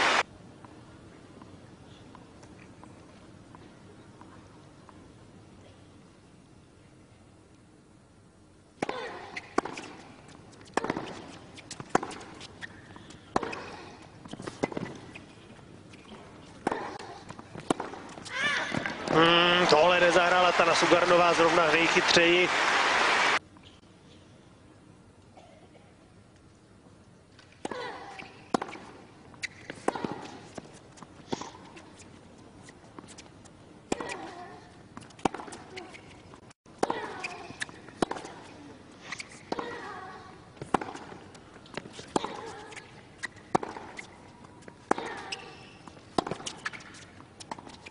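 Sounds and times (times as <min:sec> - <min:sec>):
racket striking tennis ball: 0:08.8 - 0:12.7, 0:13.3 - 0:15.2, 0:15.9 - 0:21.4, 0:33.9 - 0:34.4, 0:35.0 - 0:36.1, 0:36.8 - 0:38.5, 0:39.1 - 0:39.8, 0:40.6 - 0:44.2, 0:46.1 - 0:47.9
tennis ball bouncing: 0:08.8 - 0:21.9, 0:27.4 - 0:32.0, 0:33.9 - 0:39.9, 0:40.5 - 0:47.9
tennis ball struck by racquets: 0:10.6 - 0:12.4, 0:16.0 - 0:21.4, 0:36.8 - 0:38.5, 0:43.5 - 0:44.0.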